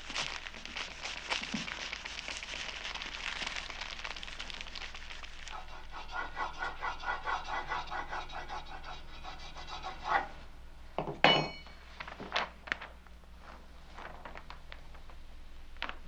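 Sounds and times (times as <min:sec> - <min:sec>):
tool rubbing paper: 0:00.0 - 0:03.7, 0:04.7 - 0:10.4.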